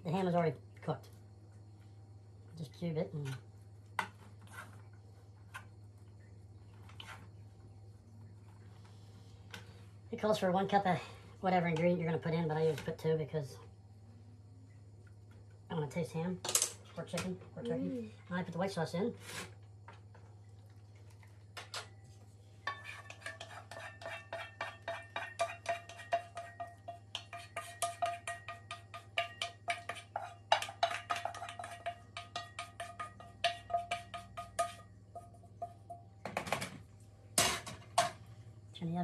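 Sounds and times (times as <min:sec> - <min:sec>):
wooden spoon scraping a saucepan: 0:04.0 - 0:05.6, 0:06.7 - 0:07.4, 0:22.6 - 0:35.9.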